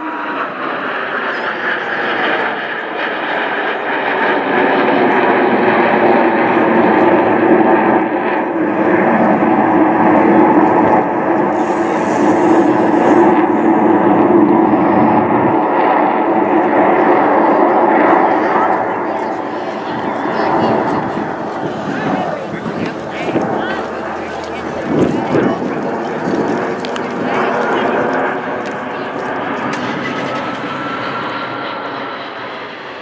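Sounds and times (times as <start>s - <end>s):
jets flying overhead: 0.0s - 33.0s.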